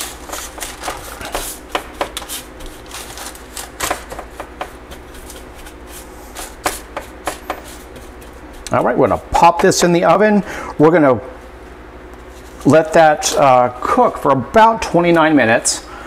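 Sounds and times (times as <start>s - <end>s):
paper rustling: 0.0s - 8.9s
hands pressing sticky mixture: 0.0s - 9.8s.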